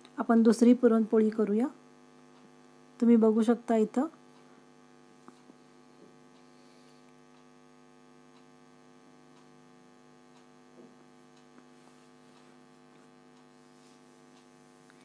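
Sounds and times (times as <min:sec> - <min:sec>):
faint electrical hum: 0:00.0 - 0:15.0
faint soft ticks: 0:08.3 - 0:08.6, 0:10.3 - 0:15.0.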